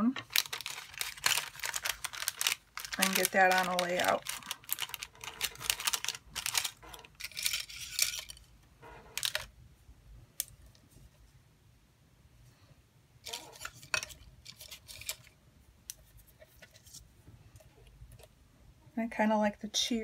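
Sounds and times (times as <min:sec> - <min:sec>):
plastic packet crinkling: 0:00.0 - 0:08.5, 0:09.1 - 0:09.5, 0:13.3 - 0:15.3.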